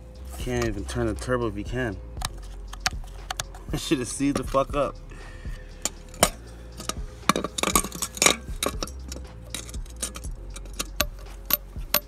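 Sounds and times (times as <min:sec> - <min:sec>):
sharp metallic clicks and clinks: 0:05.8 - 0:12.0.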